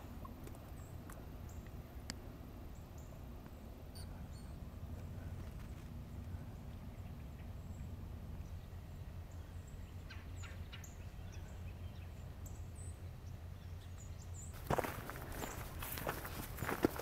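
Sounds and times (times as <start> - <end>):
faint short high chirps: 3.9 - 4.6.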